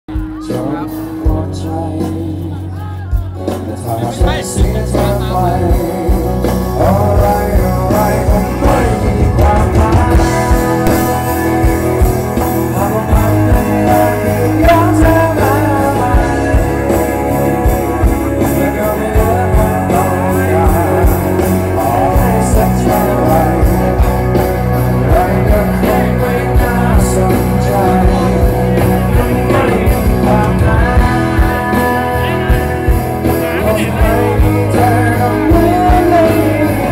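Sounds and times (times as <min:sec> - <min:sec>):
acoustic guitar: 0:00.1 - 0:36.9
electric guitar: 0:00.1 - 0:36.9
person singing: 0:00.1 - 0:36.9
drum beat: 0:07.6 - 0:36.4.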